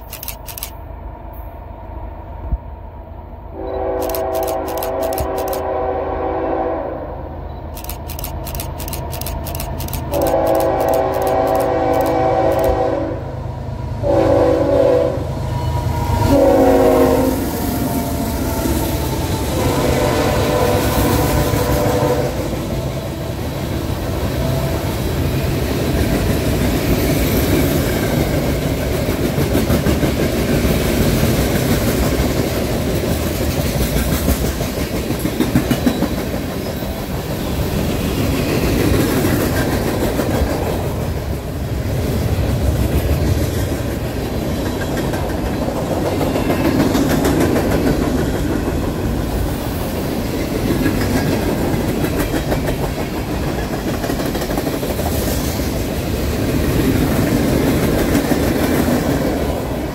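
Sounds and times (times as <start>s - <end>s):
locomotive air horn blasts: 3.6s - 7.2s, 10.1s - 13.4s, 14.0s - 15.3s, 16.3s - 17.6s, 19.5s - 22.5s
train wheels clattering on rails: 24.0s - 41.4s, 42.3s - 59.7s.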